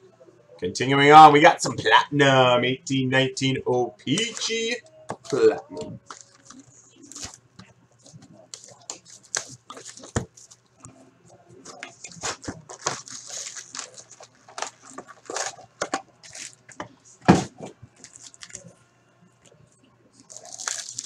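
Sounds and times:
foil wrappers rustling and crinkling: 0:04.1 - 0:07.4, 0:08.1 - 0:10.6, 0:11.7 - 0:16.8, 0:17.4 - 0:18.7, 0:20.2 - 0:21.0.

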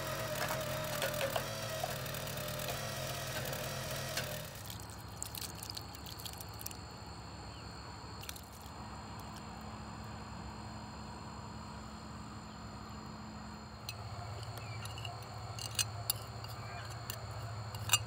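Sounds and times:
log splitter engine running: 0:00.0 - 0:05.3.

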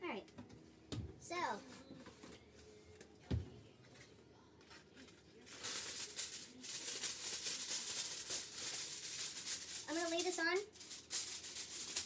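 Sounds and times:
aluminium foil crinkling: 0:03.9 - 0:12.0.

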